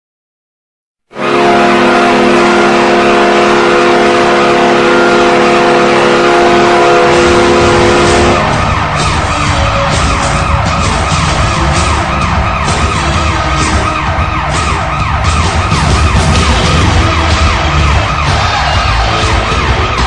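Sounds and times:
goal horn blasting: 1.1s - 14.4s
siren-like wails: 1.2s - 20.0s.

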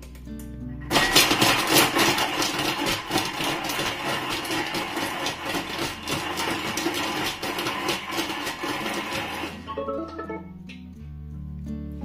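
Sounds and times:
food processor chopping: 0.9s - 9.7s.

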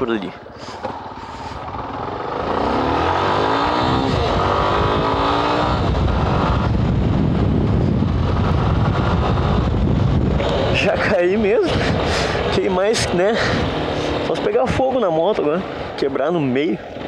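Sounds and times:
motorcycle engine accelerating: 0.7s - 15.8s
wind noise on microphone: 3.6s - 14.8s.

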